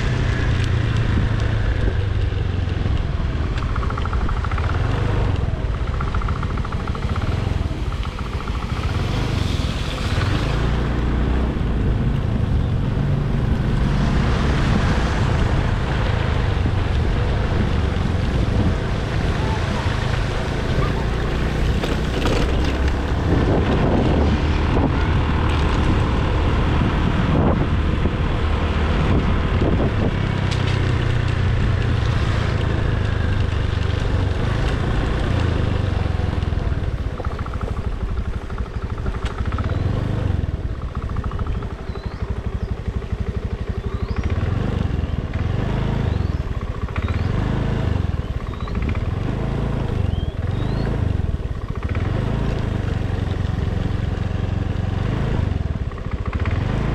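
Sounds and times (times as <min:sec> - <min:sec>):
small scooter engine running: 0:00.0 - 0:56.9
tyres through muddy water: 0:07.0 - 0:11.3.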